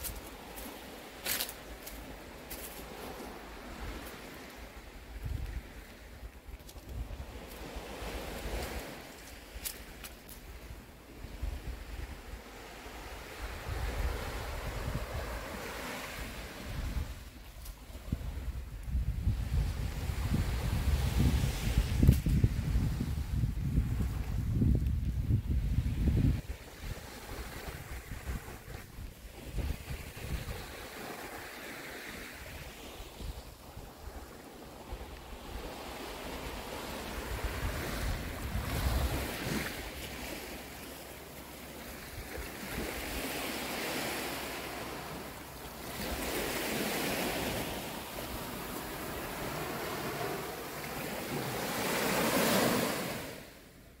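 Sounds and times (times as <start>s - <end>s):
wind rumbling on microphone: 0.0s - 40.8s
sea waves washing onto beach: 0.0s - 53.8s.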